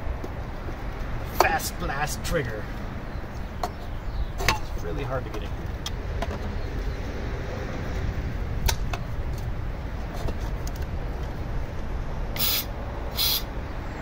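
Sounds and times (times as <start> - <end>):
aerosol spray hiss: 12.4 - 13.5.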